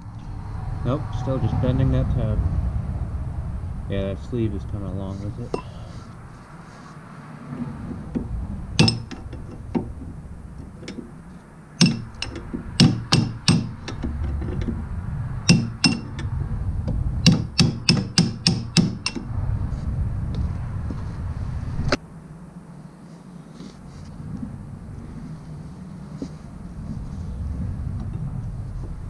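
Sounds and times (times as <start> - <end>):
hammer striking steel punch: 8.8 - 9.2, 11.8 - 13.8, 15.5 - 16.2, 17.3 - 19.2.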